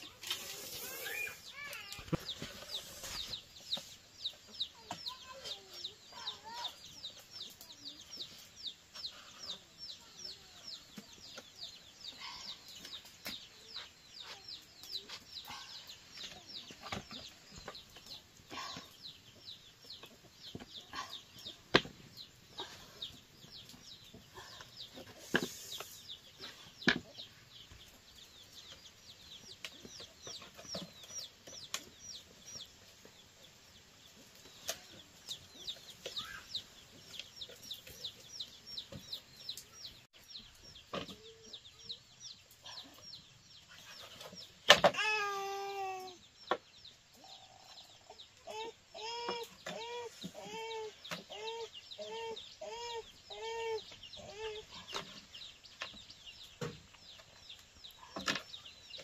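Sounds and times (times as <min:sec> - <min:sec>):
chickens cheeping: 0:14.1 - 0:59.0.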